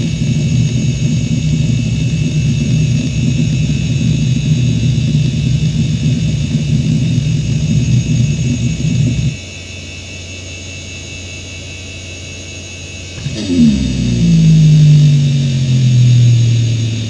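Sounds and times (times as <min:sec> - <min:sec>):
hard drive bearing whine: 0:00.0 - 0:17.0
hard drive seek buzzing: 0:13.2 - 0:17.0.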